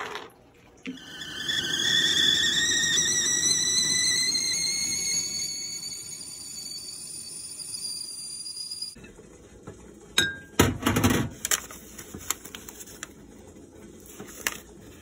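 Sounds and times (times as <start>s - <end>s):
kettle whistling: 0.9s - 9.0s.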